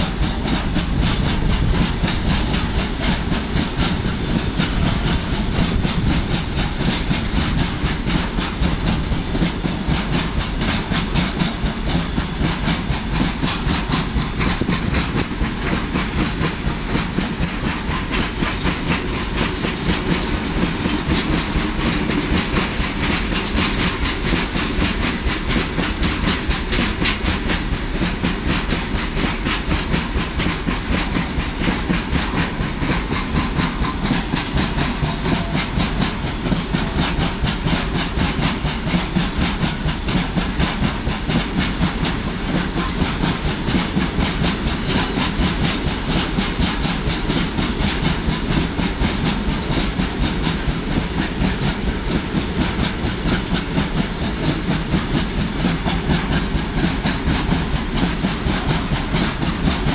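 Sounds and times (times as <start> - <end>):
train wheels clattering over joints: 0.0 - 59.9
wheel and rail hiss: 0.0 - 59.9.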